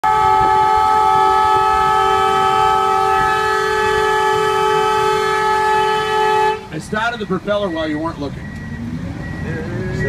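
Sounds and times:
loud two-note horn blast: 0.0 - 6.7.

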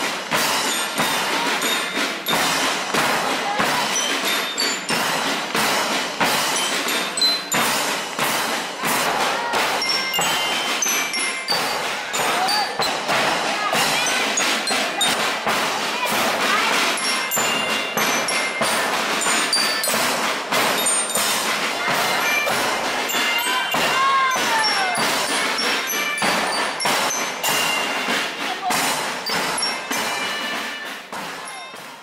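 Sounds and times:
bass and snare drums: 0.0 - 32.0
bell lyres playing: 0.0 - 32.0.

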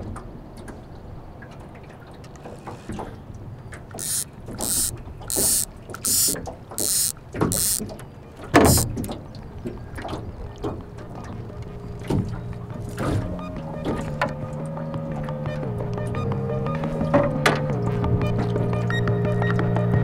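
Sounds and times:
fishing reel whirring: 4.0 - 7.8, 8.7 - 8.9.

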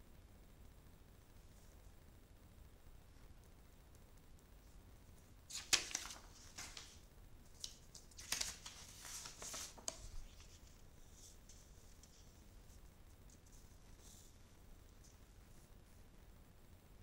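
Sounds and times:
paper rustling: 5.5 - 15.2.

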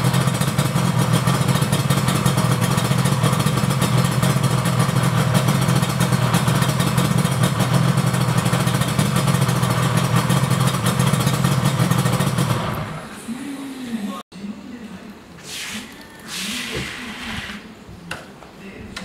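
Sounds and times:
motorcycle engine idling: 0.0 - 13.1.

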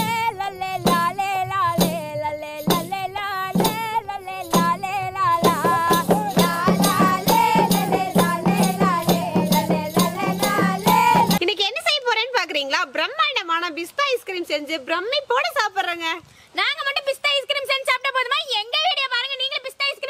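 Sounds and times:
percussion beat with shaker: 0.0 - 11.4
song with singing voice: 0.0 - 11.4.

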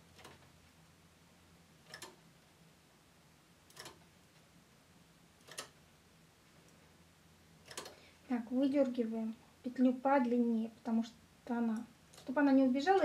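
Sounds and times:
knitting machine latch hook clicks: 1.9 - 2.2, 3.7 - 4.0, 5.5 - 5.8, 7.7 - 8.0.

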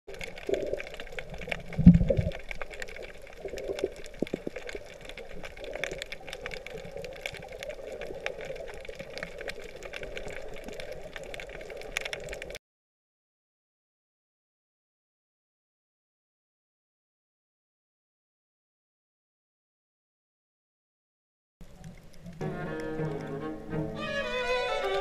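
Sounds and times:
faint underwater clicks: 0.1 - 12.6, 21.6 - 23.3
underwater water wash: 0.1 - 12.6, 21.6 - 25.0.

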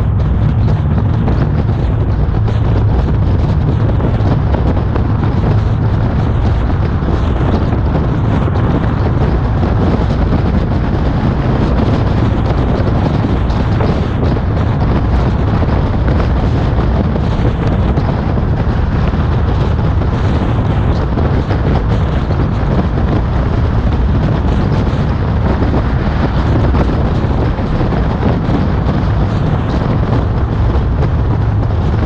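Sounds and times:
car road noise: 0.0 - 32.0
wind buffeting microphone: 0.0 - 32.0.

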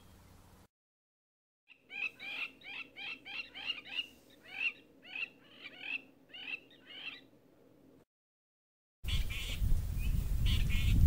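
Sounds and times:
bird calling sharp notes: 1.7 - 7.3.

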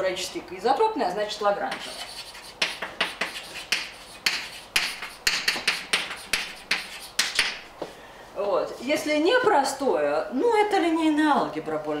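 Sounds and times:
chalk tapping and scratching: 1.6 - 7.6.

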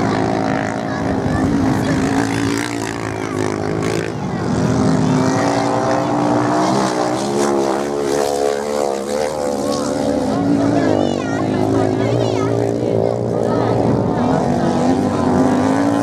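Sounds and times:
off-road motorcycle engines revving: 0.0 - 16.0.

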